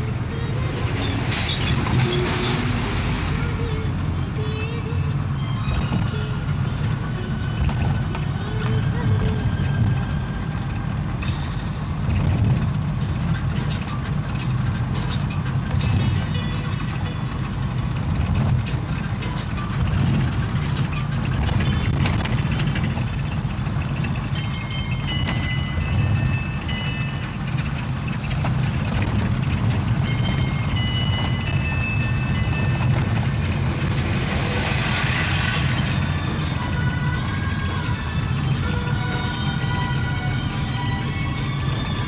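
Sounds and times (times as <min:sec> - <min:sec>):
diesel engine and road noise: 0:00.0 - 0:42.0.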